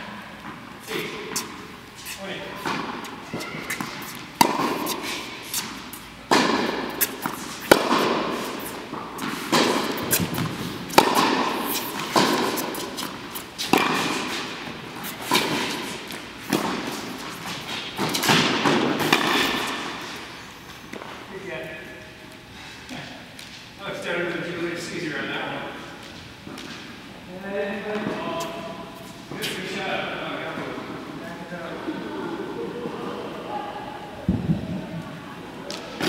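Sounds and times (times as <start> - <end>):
tennis racket strikes: 0.9 - 20.2
tennis ball bounces: 2.6 - 20.0.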